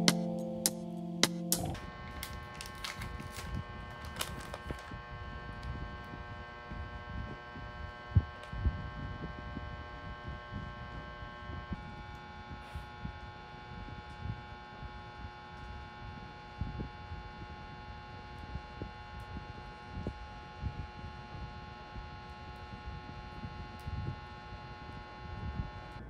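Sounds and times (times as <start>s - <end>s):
plastic snack wrapper crinkling: 2.2s - 4.9s.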